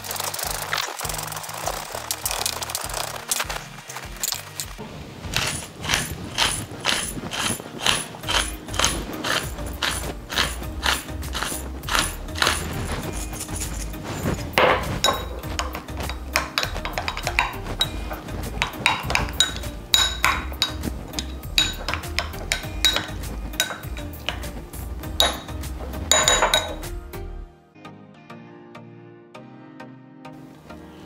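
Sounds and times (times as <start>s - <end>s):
background music: 0.0s - 31.0s
metal utensil clinking on glass bowl: 5.4s - 24.5s, 25.2s - 26.9s.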